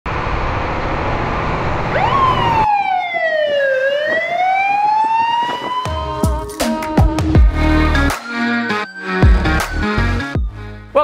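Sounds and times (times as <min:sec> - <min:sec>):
fire engine siren wailing: 0:00.2 - 0:07.0.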